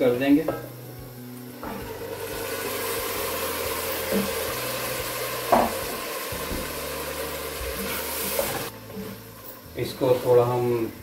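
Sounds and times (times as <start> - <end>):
frying sizzle: 0.0 - 11.0
knocks against pan: 5.5 - 6.7.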